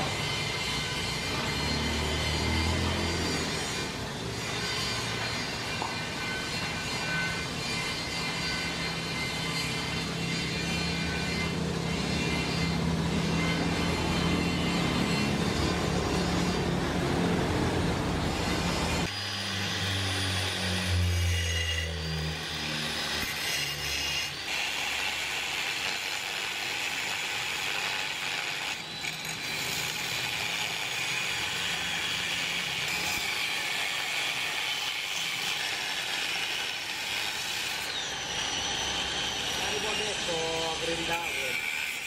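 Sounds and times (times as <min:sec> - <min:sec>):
angle grinder cutting steel: 0:00.0 - 0:42.0.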